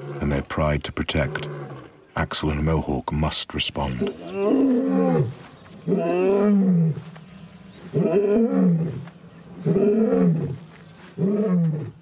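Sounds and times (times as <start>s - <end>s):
lion roaring: 4.0s - 7.1s, 7.8s - 10.6s, 11.2s - 12.0s.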